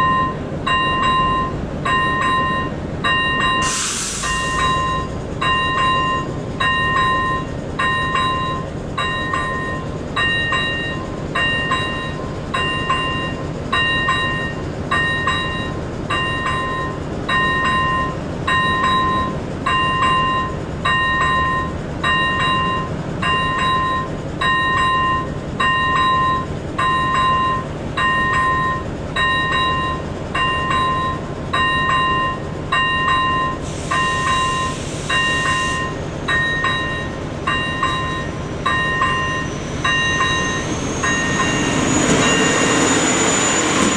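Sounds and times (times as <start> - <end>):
level-crossing bell dinging: 0.0 - 3.7, 4.3 - 43.9
brief hiss: 3.6 - 4.6.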